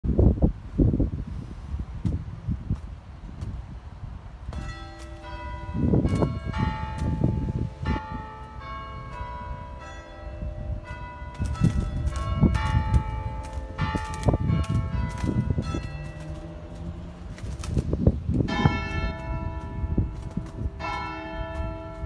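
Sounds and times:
wind rumbling on microphone: 0.0 - 22.0
church bells chiming a tune: 4.6 - 16.7, 18.4 - 22.0.

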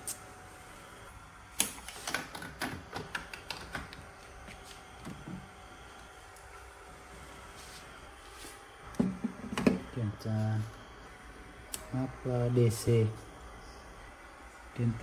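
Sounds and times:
knocks on a workbench: 9.0 - 9.8.

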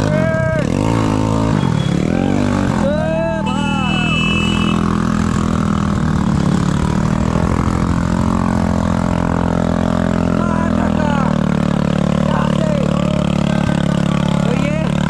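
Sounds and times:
vehicle engine running: 0.0 - 15.0.

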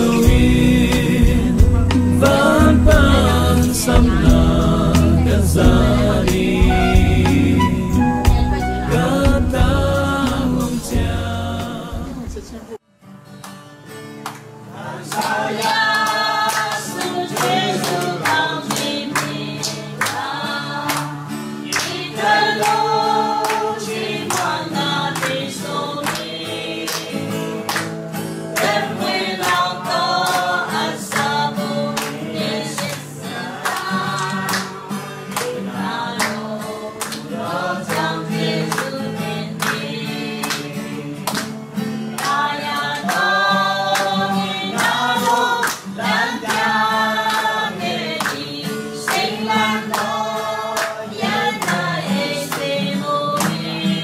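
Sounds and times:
group of people singing: 0.0 - 12.7, 14.6 - 54.0
guitar accompaniment: 0.0 - 54.0
hands clapping to beat: 13.4 - 54.0.

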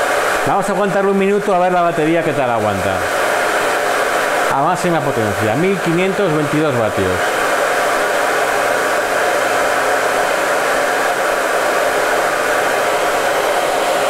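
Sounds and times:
hair dryer running: 0.0 - 14.0.

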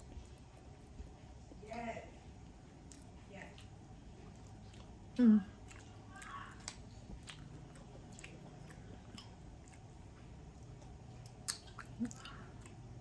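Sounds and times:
chewing ribs: 0.0 - 13.0
wet mouth clicks and smacks: 10.8 - 12.8.

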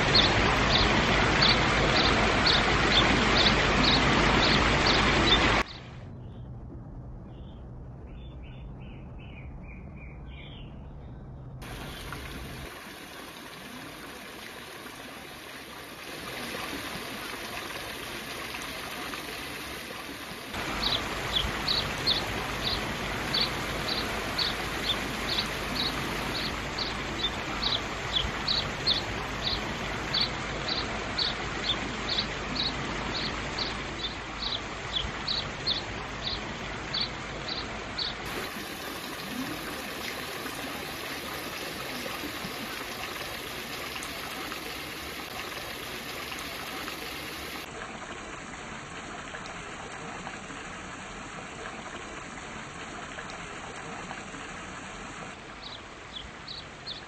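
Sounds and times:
fountain water splashing: 0.0 - 5.7, 11.6 - 57.0.

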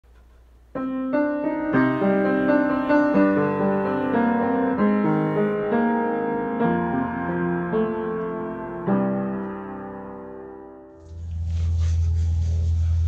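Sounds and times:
piano music: 0.8 - 13.0.

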